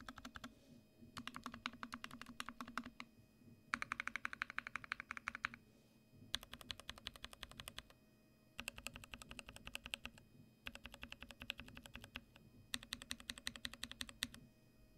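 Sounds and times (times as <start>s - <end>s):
mechanical keyboard typing: 0.0s - 0.5s, 1.2s - 3.1s, 3.7s - 5.6s, 6.3s - 7.9s, 8.6s - 14.4s.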